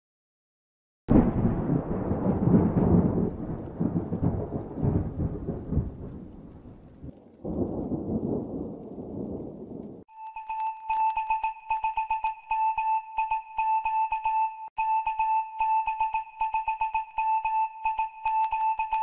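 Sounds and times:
thunder rumbling: 0:01.1 - 0:10.1.

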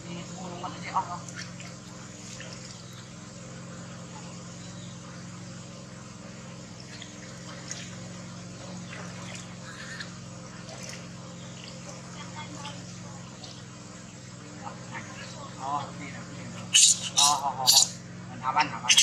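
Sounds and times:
steady low hum: 0:00.0 - 0:19.0
water splashing in plastic tub: 0:01.1 - 0:03.1, 0:06.7 - 0:13.7.

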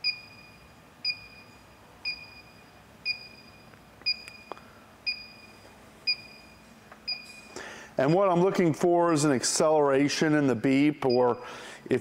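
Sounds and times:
gas detector beeping: 0:00.0 - 0:08.4, 0:11.0 - 0:11.6.

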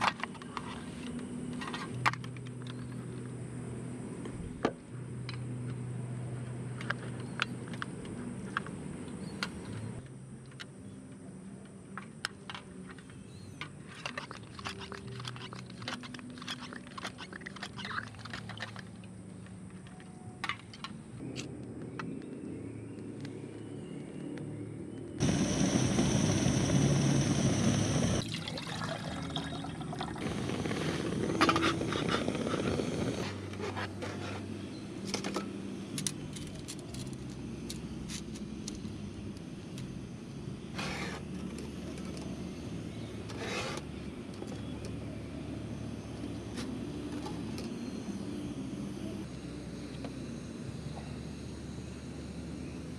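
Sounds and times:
pressurised fuel hissing: 0:25.2 - 0:28.2, 0:30.1 - 0:33.4.

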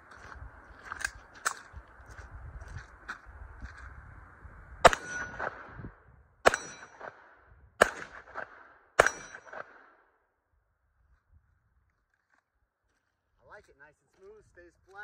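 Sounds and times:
pistol shots: 0:04.8 - 0:05.8, 0:06.4 - 0:10.1
steel target ringing clang: 0:04.9 - 0:05.5, 0:06.4 - 0:07.1, 0:09.0 - 0:09.6.

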